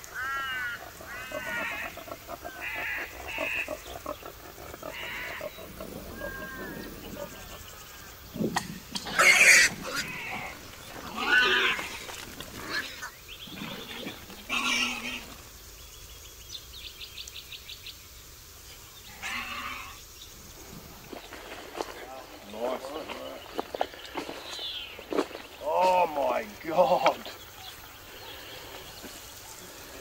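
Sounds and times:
bird calling: 0:00.0 - 0:15.5
boar squealing and grunting: 0:00.2 - 0:15.5, 0:19.1 - 0:20.0.

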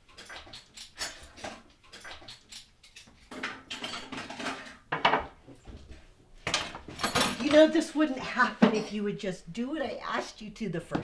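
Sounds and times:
dishes and cutlery clinking: 0:00.0 - 0:05.4, 0:06.5 - 0:09.1.

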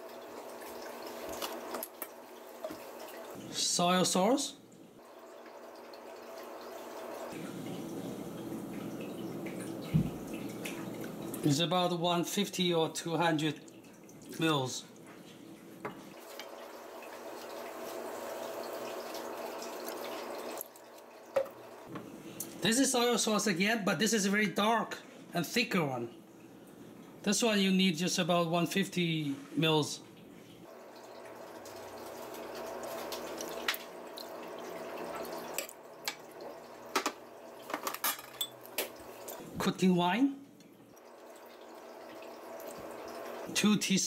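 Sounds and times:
ladle clinking: 0:36.9 - 0:39.4.

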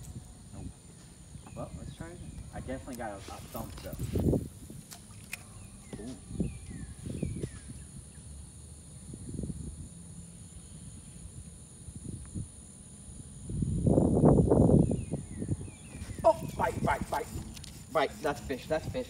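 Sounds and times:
faint bird chirps: 0:05.4 - 0:08.3.

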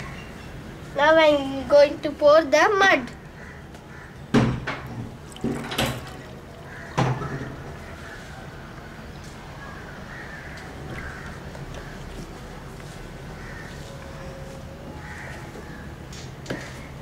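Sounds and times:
sharp knocks: 0:04.3 - 0:06.2
mud slurry splashing: 0:04.8 - 0:08.2, 0:10.4 - 0:13.6.

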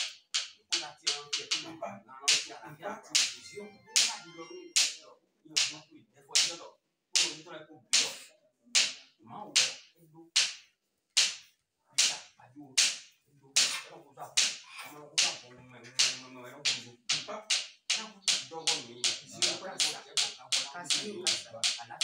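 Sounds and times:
sharp percussive cracks: 0:00.0 - 0:01.7, 0:02.3 - 0:05.0, 0:07.2 - 0:09.0, 0:09.6 - 0:09.8, 0:10.4 - 0:15.4, 0:16.0 - 0:22.0
low voices murmuring: 0:13.6 - 0:22.0.

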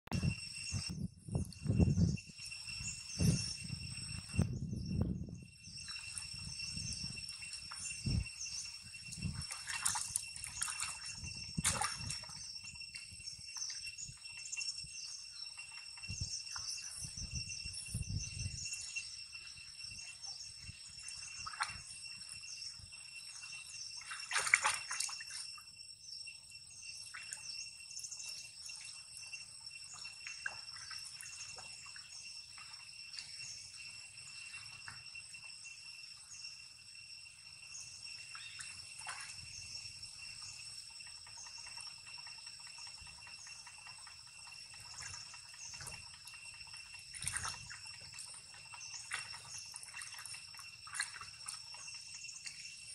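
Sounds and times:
monkeys splashing in water: 0:05.9 - 0:14.6, 0:20.2 - 0:25.6, 0:27.0 - 0:35.5, 0:38.2 - 0:52.9.

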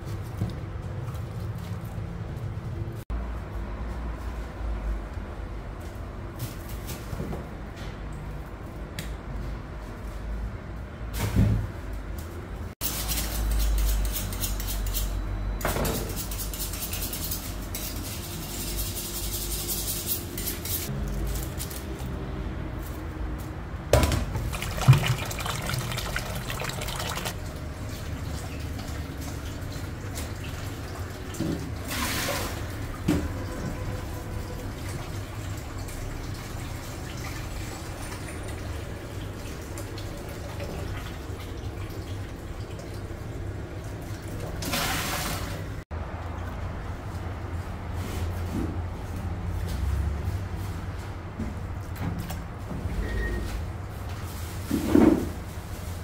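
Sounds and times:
tap running into metal bowl: 0:24.0 - 0:27.4
metal bowl clanking: 0:24.4 - 0:27.4.

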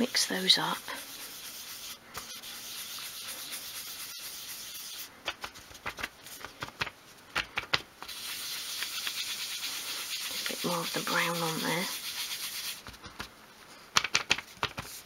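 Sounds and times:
cotton pad scrubbing paper: 0:00.1 - 0:06.6, 0:08.1 - 0:13.0.

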